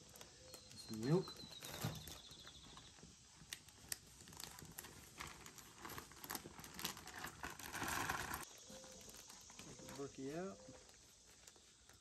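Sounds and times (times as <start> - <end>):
plastic bag crinkling: 3.6 - 10.2.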